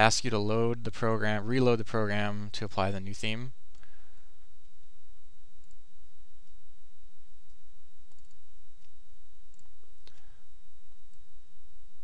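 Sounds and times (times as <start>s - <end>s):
faint high whine: 0.0s - 12.0s
steady low hum: 0.0s - 12.0s
computer mouse clicks: 7.5s - 10.2s.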